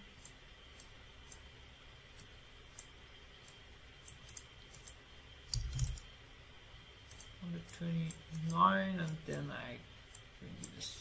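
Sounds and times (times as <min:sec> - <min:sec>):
low steady hum: 0:00.0 - 0:11.0
computer mouse clicking: 0:00.2 - 0:01.5, 0:02.2 - 0:06.1, 0:07.1 - 0:09.5, 0:10.1 - 0:10.8.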